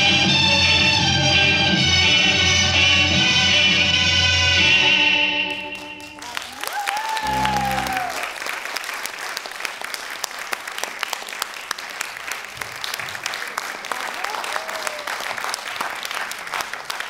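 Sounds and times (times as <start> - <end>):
audience applauding: 5.5 - 17.0.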